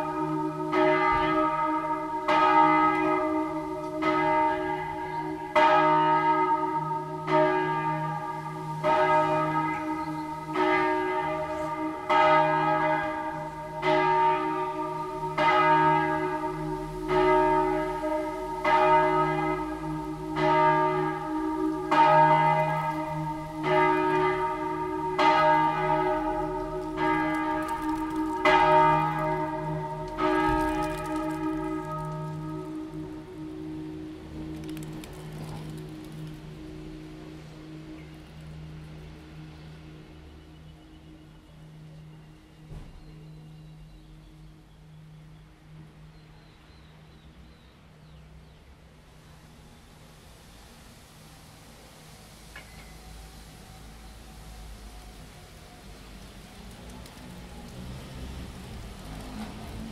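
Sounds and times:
large church bell ringing: 0.0s - 38.2s.

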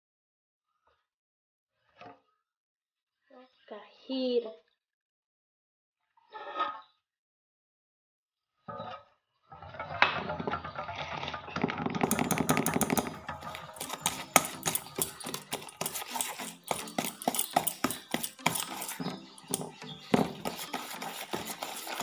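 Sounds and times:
whisk clinking on metal pot: 12.0s - 22.0s
whisk stirring batter: 12.0s - 22.0s.

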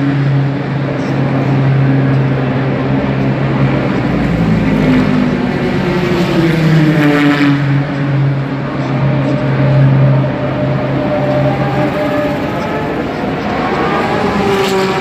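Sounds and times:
race car engines: 0.0s - 15.0s
race car passing by: 0.0s - 15.0s
low drone: 7.6s - 15.0s.

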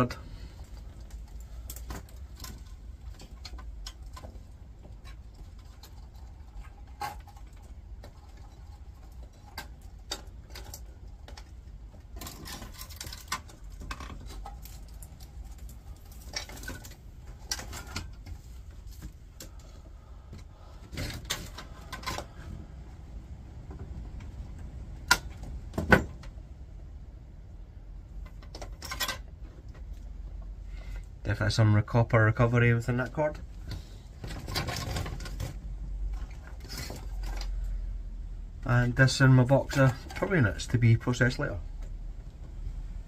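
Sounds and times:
low steady rumble: 0.0s - 43.0s.

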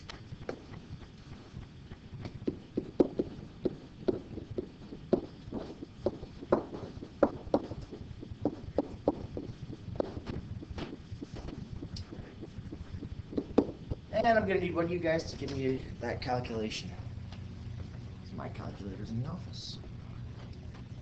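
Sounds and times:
pen tapping on whiteboard: 2.2s - 11.4s, 12.0s - 14.0s.

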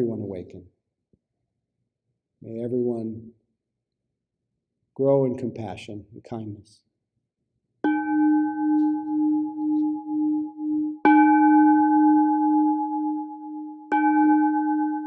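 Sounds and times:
singing bowl struck with mallet: 7.9s - 15.0s.

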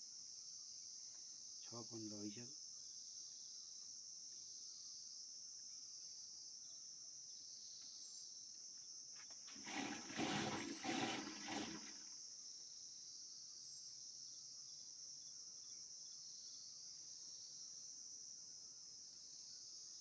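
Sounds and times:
crickets chirring: 0.0s - 20.0s
liquid sloshing in churning pot: 9.5s - 12.1s.

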